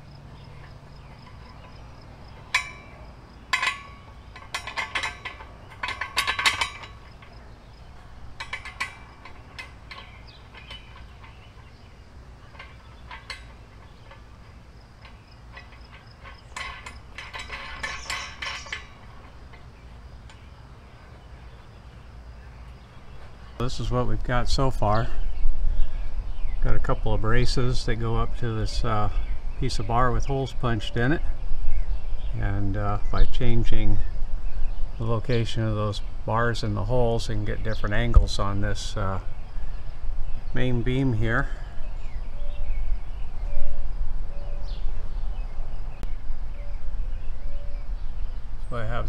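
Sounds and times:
steel parts clinking: 0:00.3 - 0:21.7.

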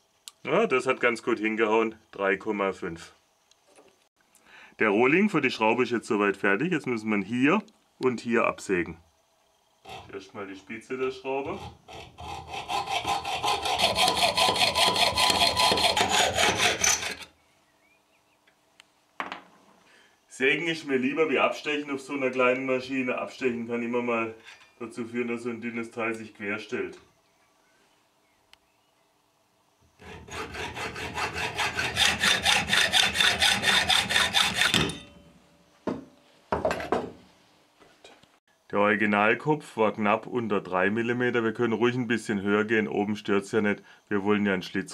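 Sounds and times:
hacksaw cutting metal: 0:09.9 - 0:10.2, 0:11.4 - 0:17.3, 0:30.0 - 0:35.3.

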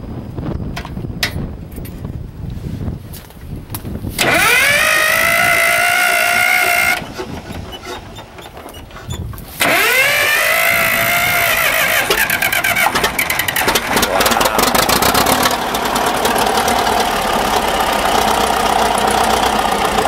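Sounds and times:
diesel engine firing knocks: 0:04.2 - 0:20.0
starter motor whine: 0:04.2 - 0:20.0.

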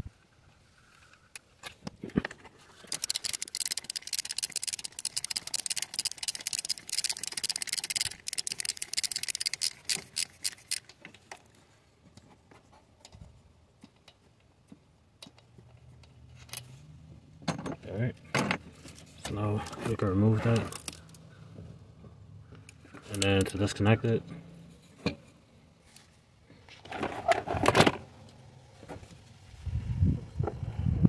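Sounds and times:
clicking and scratching: 0:02.8 - 0:11.0.

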